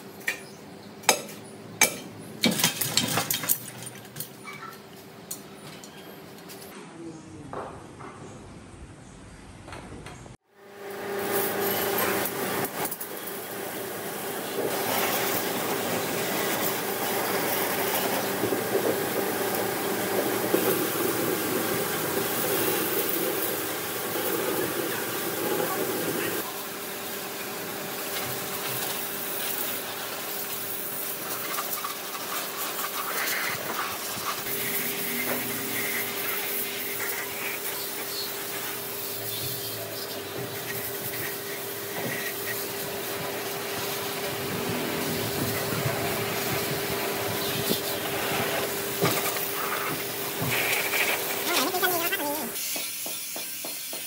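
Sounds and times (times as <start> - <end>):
workshop machine humming: 10.5 - 53.2
rough working noise: 10.7 - 54.0.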